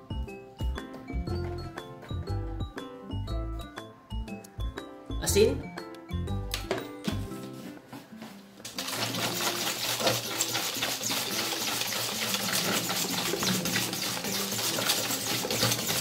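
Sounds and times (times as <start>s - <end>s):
whisk scraping metal bowl: 8.7s - 16.0s.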